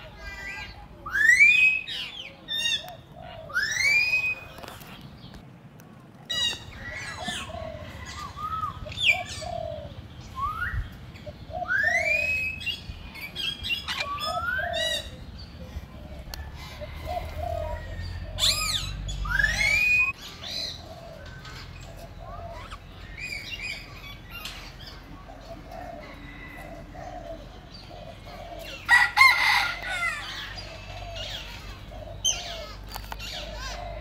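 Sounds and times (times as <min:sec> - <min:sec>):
bird whistle sweeping upward: 0:11.6 - 0:12.8, 0:18.6 - 0:20.2.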